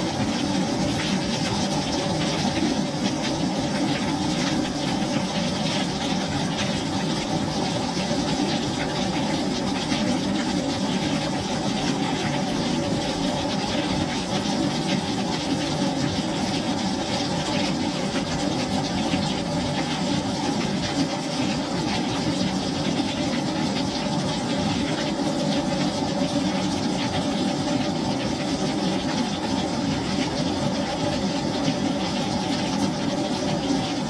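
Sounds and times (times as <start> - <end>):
rain on wooden deck: 0.0 - 34.0.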